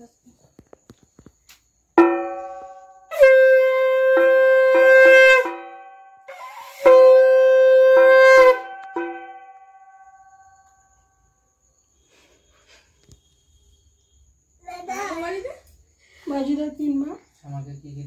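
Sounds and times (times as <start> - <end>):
conch shell blasts: 2.0 - 10.8.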